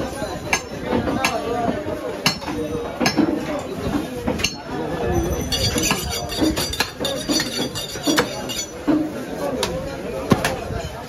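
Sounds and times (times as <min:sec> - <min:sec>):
background voices chattering: 0:00.0 - 0:11.0
cleavers chopping meat on wood: 0:00.6 - 0:03.4, 0:05.9 - 0:10.6.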